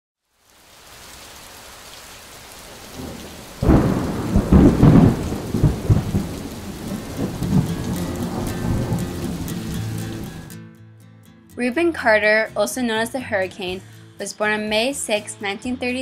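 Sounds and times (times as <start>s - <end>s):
steady rain: 0.2s - 10.5s
thunder rolling: 2.7s - 10.4s.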